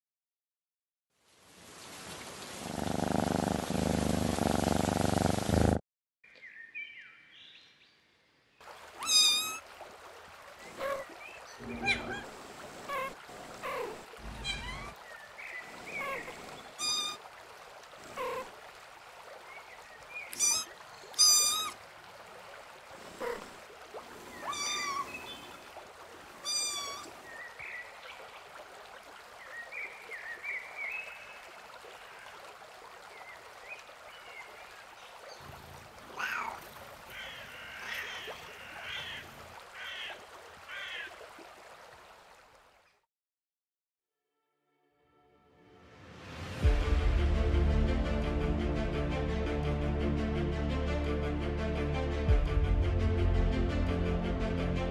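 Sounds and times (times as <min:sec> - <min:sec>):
stream-like hiss: 0:01.2 - 0:05.8, 0:08.6 - 0:42.8
high cat mews: 0:20.4 - 0:21.8, 0:24.4 - 0:25.1, 0:26.4 - 0:27.1, 0:36.1 - 0:36.6.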